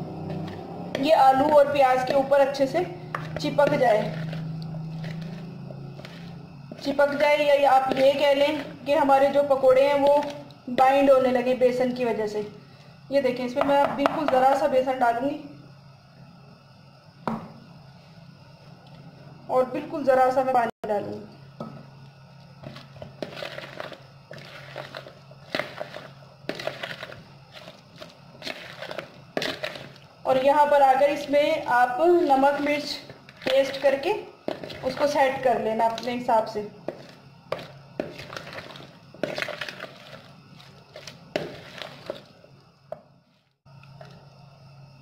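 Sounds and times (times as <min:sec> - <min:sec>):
spoon stirring thick batter: 0:00.2 - 0:11.0, 0:22.3 - 0:42.5.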